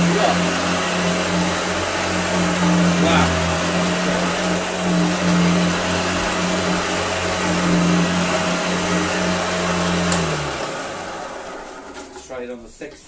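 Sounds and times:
vacuum cleaner running: 0.0s - 12.3s
vacuum switch click: 10.1s - 10.3s.

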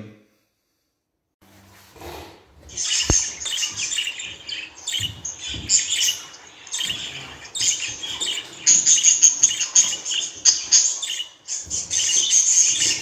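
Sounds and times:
budgerigars chirping and chattering: 2.7s - 13.0s.

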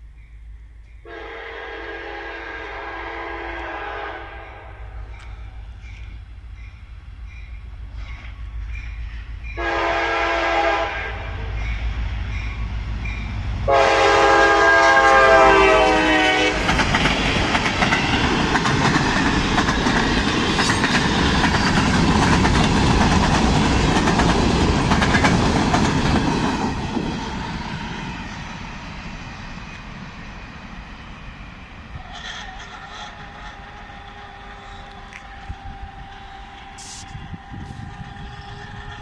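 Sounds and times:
locomotive multi-note horn: 1.0s - 5.0s, 9.6s - 11.6s, 13.6s - 16.7s, 32.0s - 39.0s
freight cars rumbling on rails: 4.7s - 39.0s.

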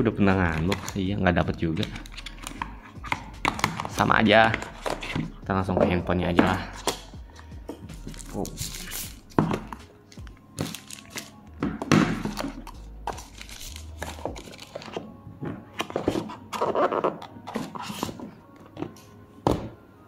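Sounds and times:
phone and box knocking on wooden table: 9.4s - 9.8s.

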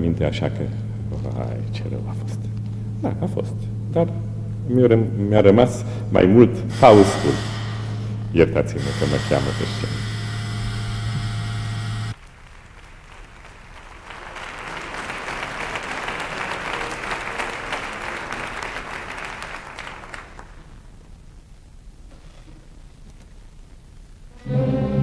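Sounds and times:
steady low hum: 0.0s - 13.8s, 14.4s - 25.0s
audience applauding: 12.1s - 21.1s.

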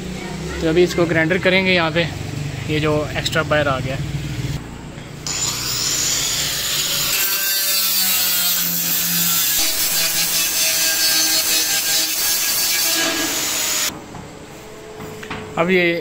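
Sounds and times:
angle grinder grinding metal: 5.2s - 13.9s.

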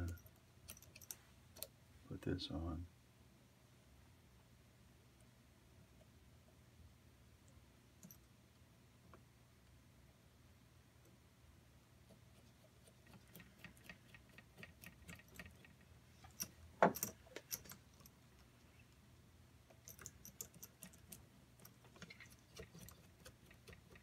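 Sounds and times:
metal parts clicking and tapping: 0.0s - 1.7s, 12.8s - 18.5s, 19.7s - 24.0s.

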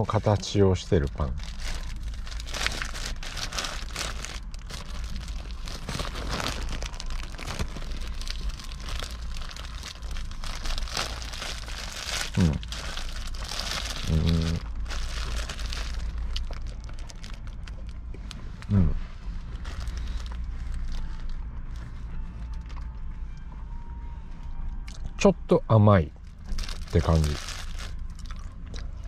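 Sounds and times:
plastic bag crinkling: 0.2s - 18.0s, 19.5s - 21.4s, 26.4s - 28.5s
man humming: 12.4s - 12.6s, 14.1s - 14.6s, 18.7s - 19.0s.

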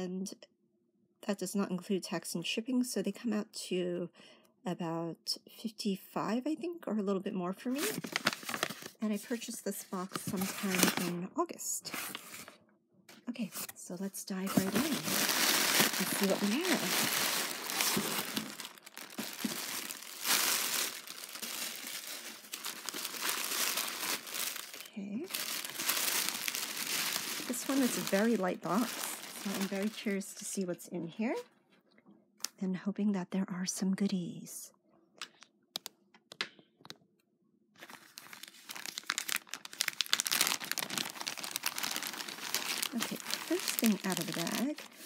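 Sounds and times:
plastic bag crinkling: 7.8s - 9.0s, 10.1s - 11.2s, 14.3s - 30.3s, 37.8s - 45.0s.

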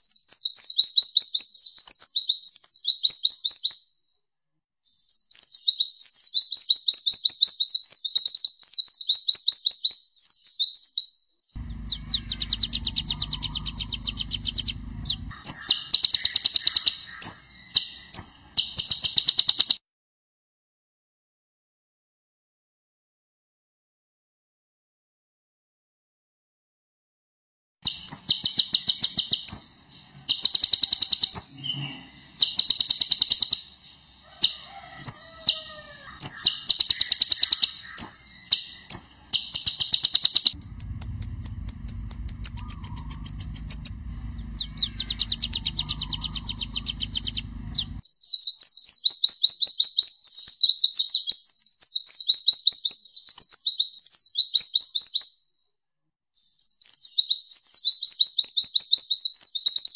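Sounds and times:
low hum: 11.6s - 19.1s, 27.9s - 34.3s, 36.6s - 48.0s
bird singing rapid trills: 11.6s - 19.8s, 27.9s - 48.6s.

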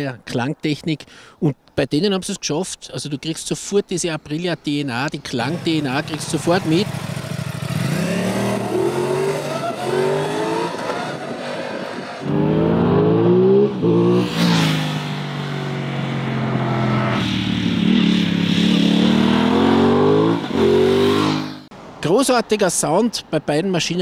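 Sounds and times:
motorcycle accelerating through gears: 5.5s - 21.7s.

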